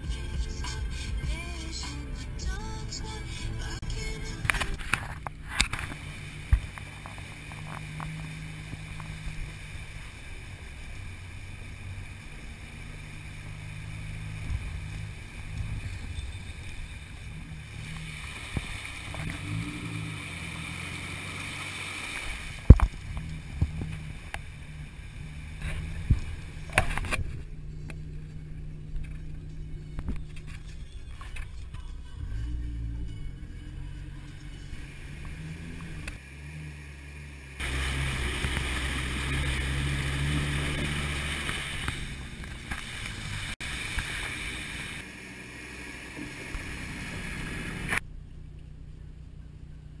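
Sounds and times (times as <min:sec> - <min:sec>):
water splashing along body: 0:00.0 - 0:49.2
truck engine running: 0:00.0 - 0:50.0
tyres splashing through muddy water: 0:00.0 - 0:50.0.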